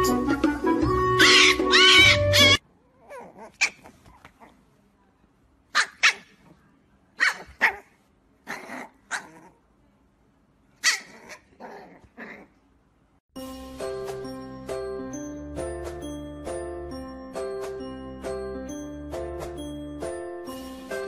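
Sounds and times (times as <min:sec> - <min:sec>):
puppy yapping: 0:01.2 - 0:04.6, 0:05.8 - 0:06.5, 0:07.2 - 0:09.6, 0:10.8 - 0:12.6.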